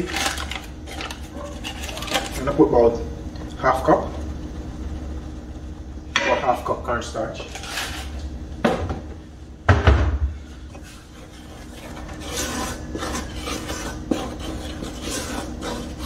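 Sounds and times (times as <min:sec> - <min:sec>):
wooden spoon scraping a bowl: 0:10.5 - 0:16.0.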